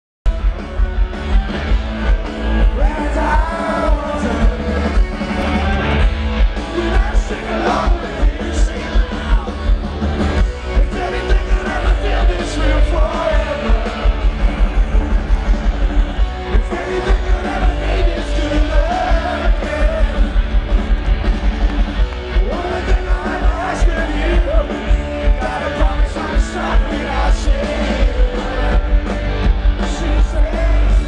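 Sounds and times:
heavy bass: 0:00.2 - 0:31.0
distorted electric guitars: 0:00.3 - 0:31.0
fast drum beat: 0:00.3 - 0:31.0
person singing: 0:02.6 - 0:05.8, 0:06.6 - 0:09.7, 0:16.5 - 0:20.3, 0:22.4 - 0:31.0.

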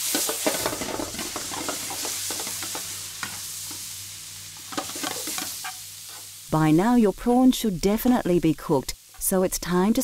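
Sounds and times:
prawns sizzling in hot oil: 0:00.0 - 0:10.0.

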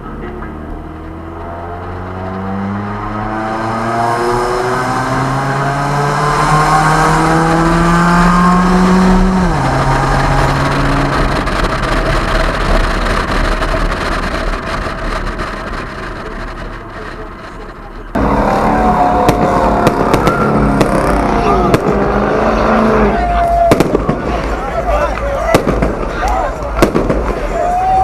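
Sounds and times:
car engine accelerating: 0:00.0 - 0:26.0
wind and road noise: 0:00.0 - 0:28.0.

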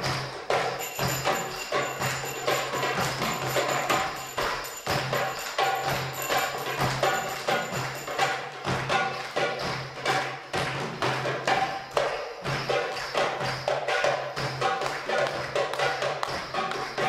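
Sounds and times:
finger cymbals ringing: 0:00.0 - 0:10.5
hand drums playing fast rhythm: 0:00.0 - 0:17.0.

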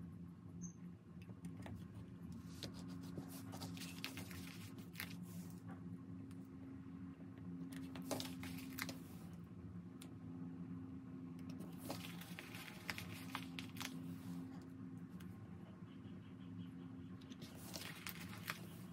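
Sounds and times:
steady low hum: 0:00.0 - 0:18.9
light paper rustling: 0:01.6 - 0:05.6, 0:07.7 - 0:09.3, 0:11.5 - 0:14.6, 0:17.3 - 0:18.9.

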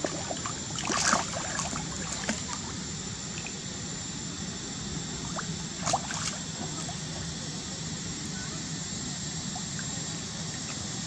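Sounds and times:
water splashing: 0:00.0 - 0:02.6
moving water: 0:00.0 - 0:03.6, 0:05.2 - 0:07.2.

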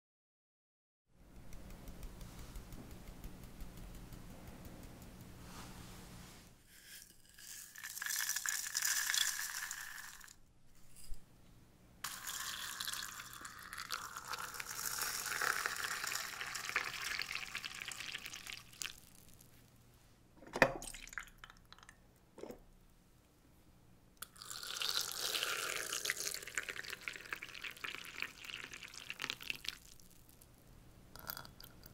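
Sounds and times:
hot water pouring into teapot: 0:06.9 - 0:10.4, 0:12.0 - 0:19.1, 0:20.8 - 0:21.9, 0:24.2 - 0:29.9, 0:31.2 - 0:31.9.

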